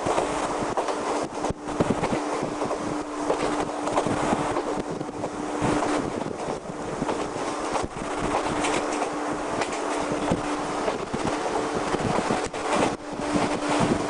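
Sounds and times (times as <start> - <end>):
train rushing rumble: 0.0 - 14.0
clicks and rattles: 7.1 - 11.4.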